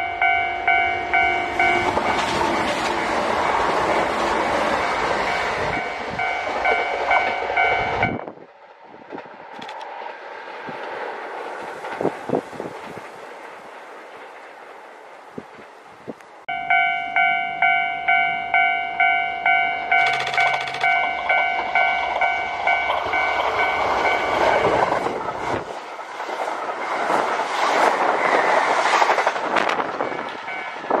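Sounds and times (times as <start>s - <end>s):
level-crossing warning bell ringing: 0.0s - 8.3s, 16.5s - 25.0s, 30.0s - 31.0s
electric train rushing past: 0.0s - 31.0s.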